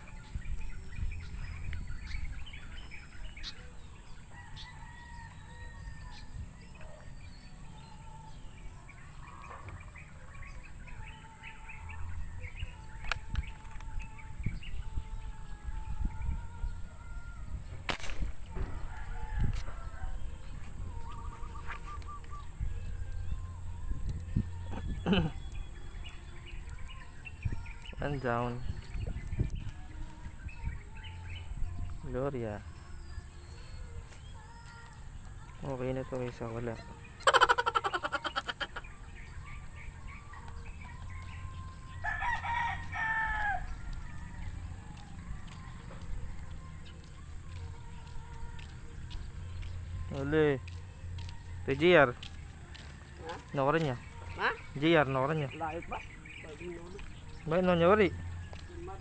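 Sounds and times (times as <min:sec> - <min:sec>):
rooster crowing: 0:04.3 - 0:06.3, 0:18.5 - 0:20.4, 0:41.9 - 0:45.1
sharp snap: 0:17.9 - 0:18.6
chicken clucking: 0:37.2 - 0:38.8.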